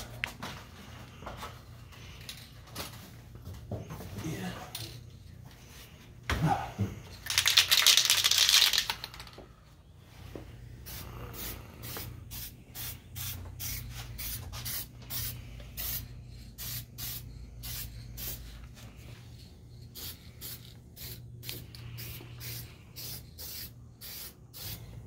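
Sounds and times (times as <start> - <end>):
low steady hum: 0.0 - 25.0
spray-paint can hissing: 10.9 - 18.5, 19.9 - 25.0.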